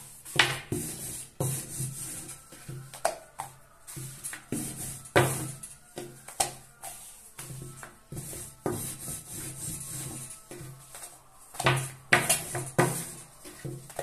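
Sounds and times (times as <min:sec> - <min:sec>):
rolling pin rolling over dough: 0:00.0 - 0:14.0
rolling pin knocking on counter: 0:00.4 - 0:01.9.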